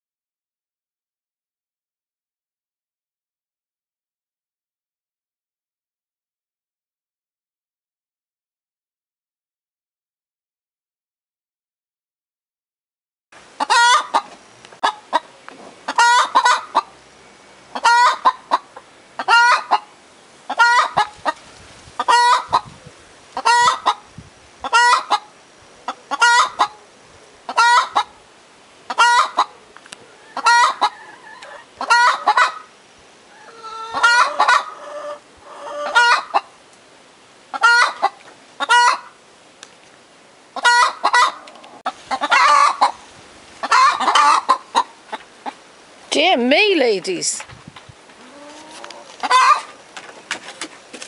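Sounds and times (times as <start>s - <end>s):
hens cackling: 13.6s - 17.0s, 17.7s - 19.9s, 20.5s - 21.4s, 22.0s - 22.8s, 23.4s - 24.0s, 24.6s - 26.9s, 27.5s - 28.2s, 28.9s - 32.7s, 33.3s - 36.6s, 37.5s - 39.2s, 40.6s - 45.6s, 48.1s - 49.8s.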